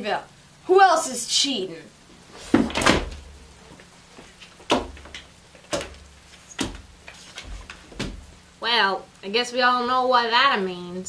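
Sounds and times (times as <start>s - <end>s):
cards slapped on wooden table: 4.4s - 8.3s.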